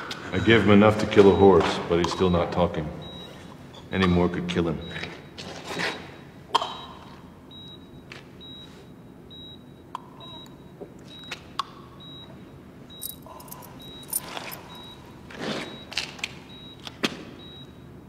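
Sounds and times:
heart monitor beeping: 9.3s - 11.4s, 12.9s - 15.0s.

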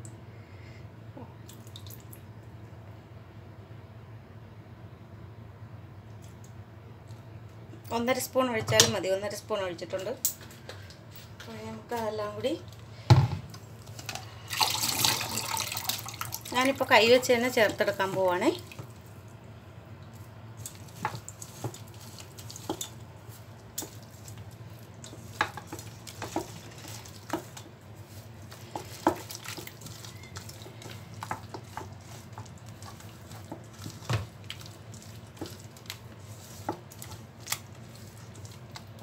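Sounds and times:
wet paste squishing: 20.1s - 39.0s.

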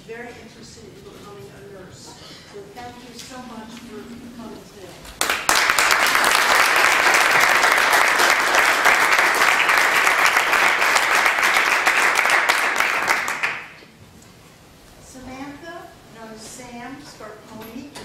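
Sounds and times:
crowd applause: 5.2s - 13.7s.

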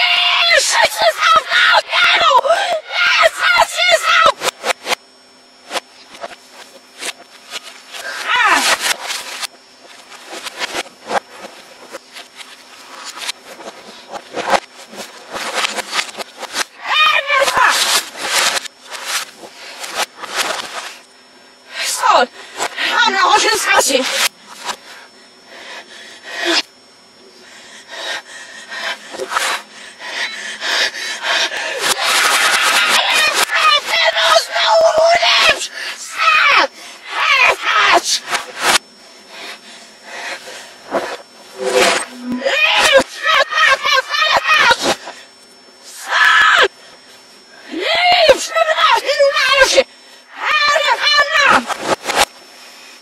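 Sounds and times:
reversed breathing and vocal noises: 5.6s - 44.0s
voice-like cry sliding down: 41.6s - 45.0s.

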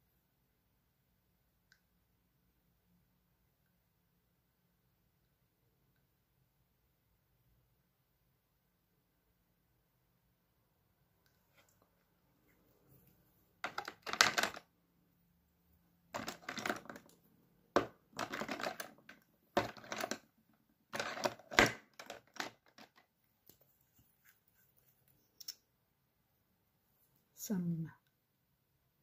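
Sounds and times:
plastic items clicking and clattering: 13.6s - 14.7s, 16.1s - 17.2s, 17.8s - 23.1s.

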